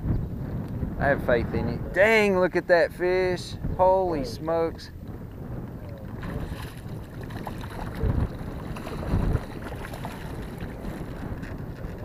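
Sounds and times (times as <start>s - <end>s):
choppy water: 0.0s - 12.0s
wind buffeting microphone: 0.0s - 12.0s
fish splashing: 6.1s - 12.0s.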